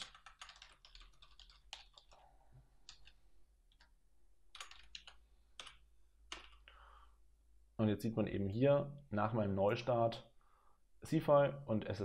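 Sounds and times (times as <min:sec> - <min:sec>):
keyboard typing: 0:00.0 - 0:02.2, 0:02.8 - 0:06.7.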